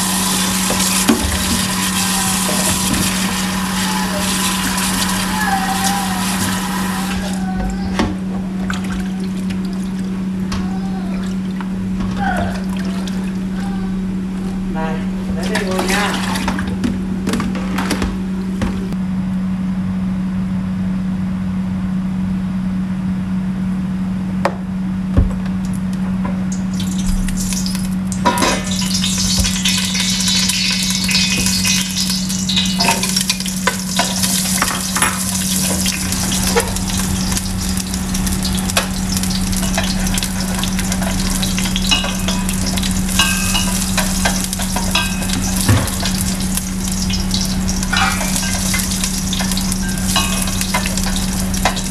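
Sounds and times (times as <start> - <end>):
oil sizzling in a pot: 0.0 - 7.4, 26.6 - 51.9
steady low hum: 0.0 - 51.9.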